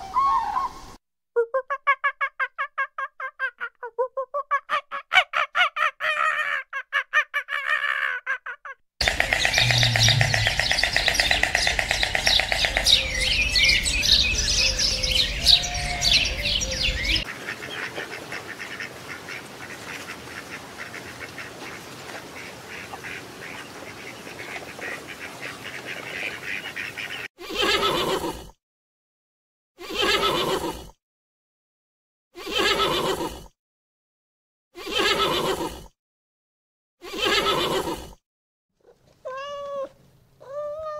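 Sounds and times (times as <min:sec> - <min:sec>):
pitched animal calls: 0:04.4 - 0:17.3
flock of birds chattering: 0:09.0 - 0:19.4.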